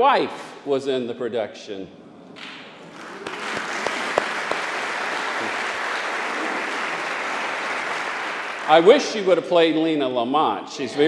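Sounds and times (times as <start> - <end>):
congregation applauding: 2.4 - 9.5.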